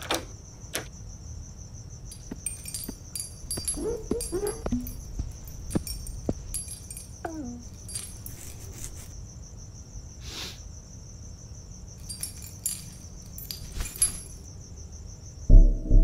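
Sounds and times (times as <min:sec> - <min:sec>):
crickets chirping: 0:00.0 - 0:16.0
metal keys jangling: 0:02.1 - 0:09.1, 0:12.0 - 0:14.5.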